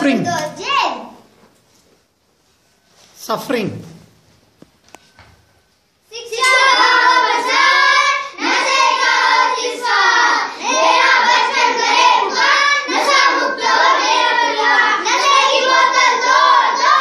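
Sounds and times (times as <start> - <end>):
children singing in unison: 6.2 - 17.0.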